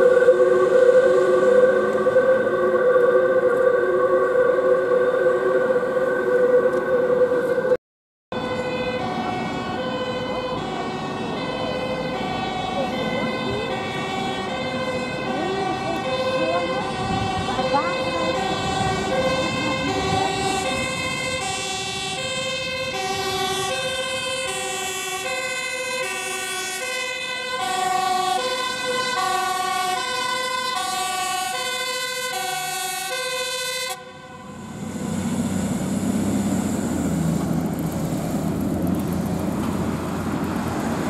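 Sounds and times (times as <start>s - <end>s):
traffic noise: 0.0s - 41.0s
two-tone fire engine siren: 0.0s - 41.0s
truck engine running: 34.4s - 41.0s.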